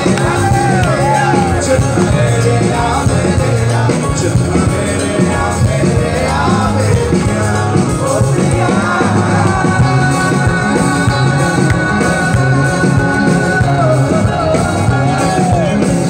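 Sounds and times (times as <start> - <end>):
electric guitars: 0.0 - 16.0
person singing: 0.0 - 16.0
steady drum beat: 0.0 - 16.0.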